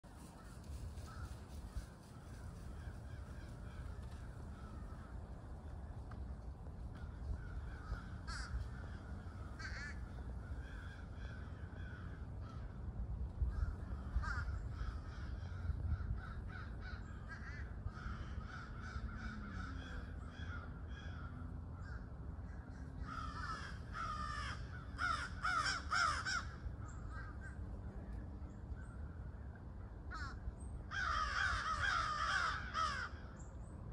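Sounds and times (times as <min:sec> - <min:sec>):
crows cawing: 0:00.2 - 0:05.3, 0:06.9 - 0:27.7, 0:30.1 - 0:33.4.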